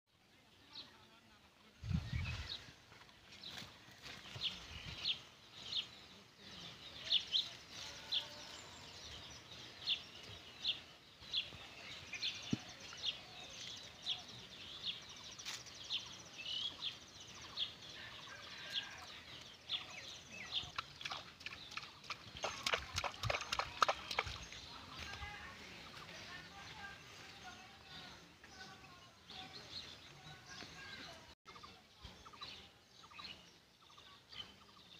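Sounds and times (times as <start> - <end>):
small bird chirping: 19.6 - 26.1.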